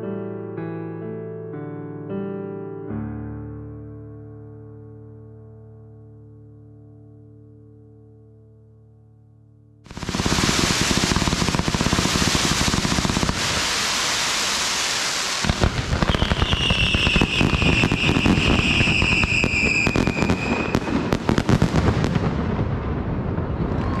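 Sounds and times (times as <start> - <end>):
fireworks crackling: 9.9 - 24.0
spark fountain hissing: 10.0 - 20.7
high firework whistle: 10.0 - 21.6.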